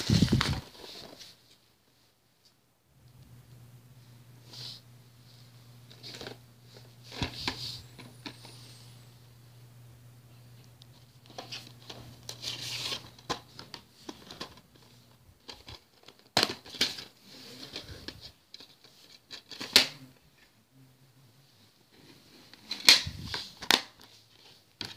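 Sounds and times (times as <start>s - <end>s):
plastic case scraping and rustling: 0.0s - 1.4s.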